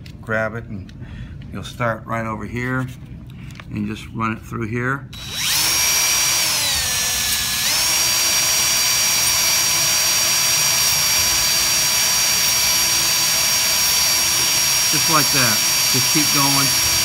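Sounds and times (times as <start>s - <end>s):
cordless drill motor whine: 5.1s - 17.0s.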